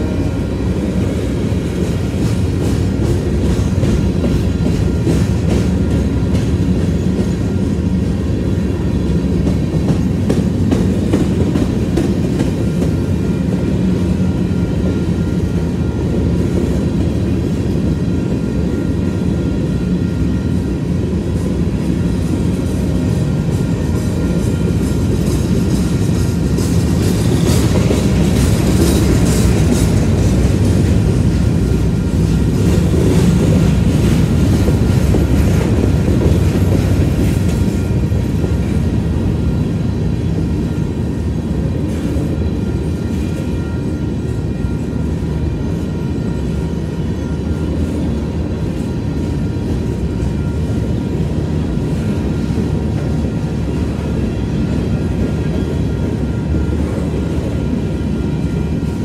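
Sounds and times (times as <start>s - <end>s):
clickety-clack over rail joints: 0.0s - 59.0s
train wheels rumbling on rail: 0.0s - 59.0s.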